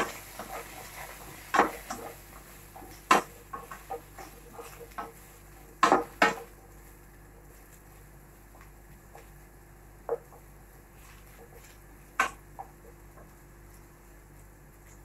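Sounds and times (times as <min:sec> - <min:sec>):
spatula scraping frying pan: 0:00.0 - 0:06.6.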